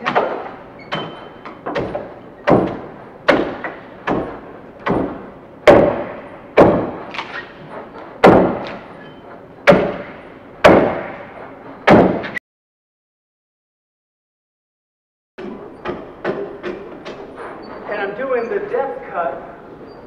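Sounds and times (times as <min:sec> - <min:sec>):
axe chopping into log: 0:09.7 - 0:11.2.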